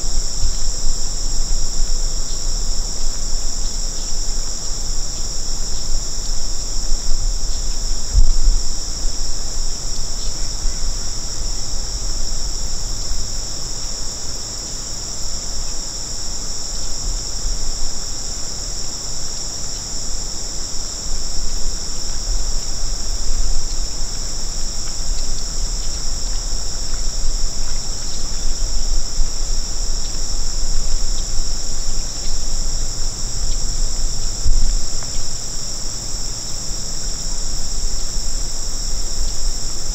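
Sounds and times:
insect chorus trilling: 0:00.0 - 0:39.9.

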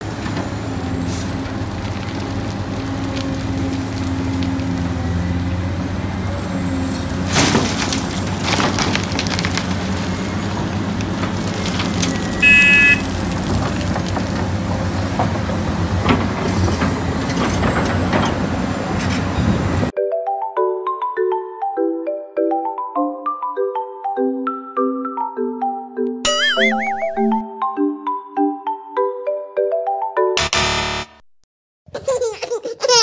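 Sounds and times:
excavator diesel engine running: 0:00.0 - 0:19.9
rock and dirt clattering: 0:01.2 - 0:04.9, 0:07.0 - 0:19.4
short beep: 0:12.4 - 0:13.0, 0:26.3 - 0:27.4.

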